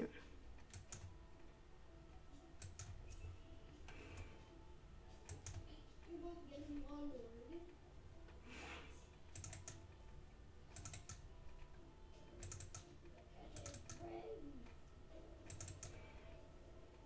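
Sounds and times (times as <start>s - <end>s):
computer mouse clicking: 0.6s - 1.2s, 2.6s - 3.3s, 5.1s - 5.7s, 9.3s - 10.0s, 10.7s - 11.7s, 12.3s - 14.7s, 15.4s - 16.2s.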